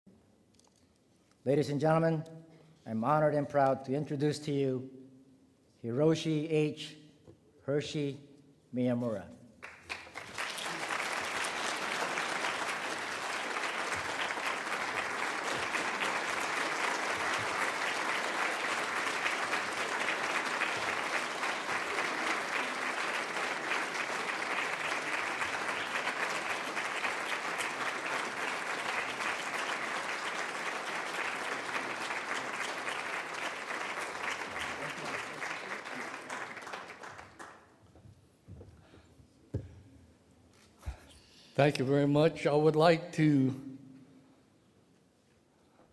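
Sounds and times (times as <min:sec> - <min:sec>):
audience applauding: 0:09.6 - 0:37.7.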